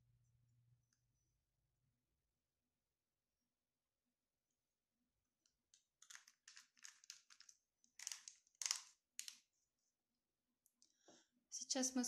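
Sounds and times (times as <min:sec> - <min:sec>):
small bottles clicking: 0:05.7 - 0:09.4.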